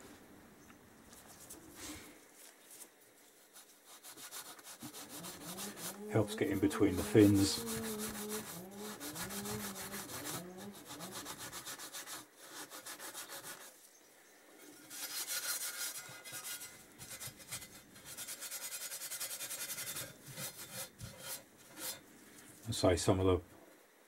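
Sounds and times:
abrasive pad scrubbing metal: 3.8s - 13.7s.

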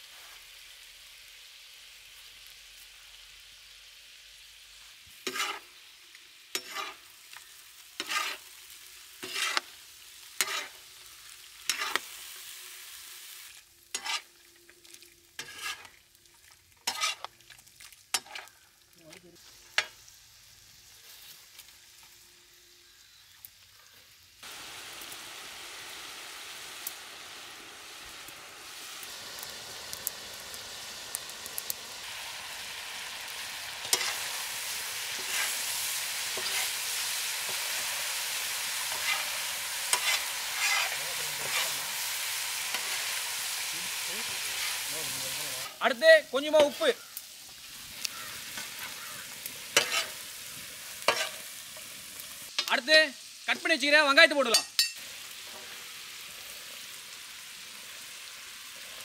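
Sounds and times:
chicken sizzling in a pan: 0.0s - 59.0s
utensil scraping and knocking pan: 49.8s - 50.2s.

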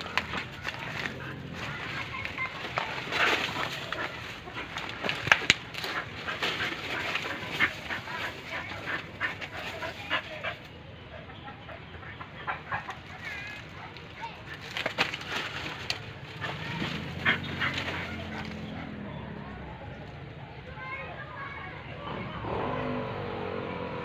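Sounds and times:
dry leaves rustling and crackling: 0.0s - 10.7s, 12.6s - 18.8s.

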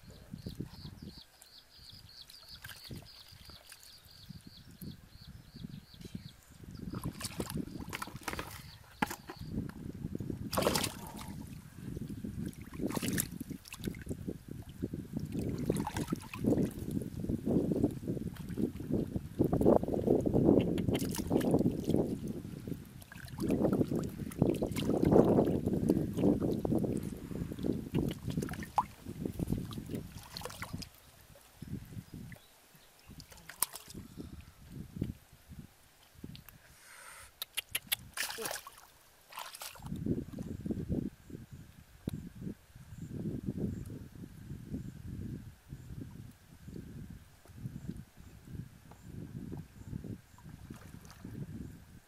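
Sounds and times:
muddy water sloshing: 2.2s - 4.1s, 6.8s - 17.0s, 17.6s - 31.6s, 32.2s - 34.1s, 37.9s - 40.4s, 50.4s - 51.4s
hands splashing in muddy water: 6.9s - 9.4s, 10.5s - 11.6s, 12.4s - 14.1s, 15.2s - 16.9s, 20.6s - 22.0s, 27.8s - 31.0s, 33.1s - 34.0s, 37.9s - 40.0s
loud water splashes: 10.5s - 11.5s, 38.2s - 39.9s.

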